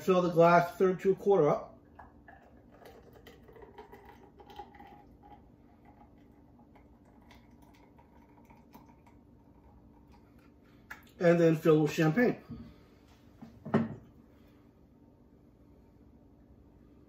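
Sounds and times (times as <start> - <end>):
puree pouring into glass: 1.2 - 11.2.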